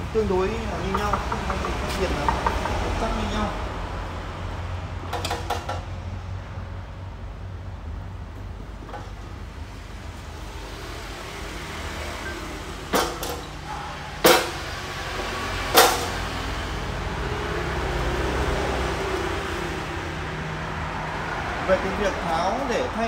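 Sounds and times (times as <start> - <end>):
sharp metal knocks: 0.8 - 3.4, 5.0 - 6.0, 12.9 - 13.6, 14.2 - 16.4.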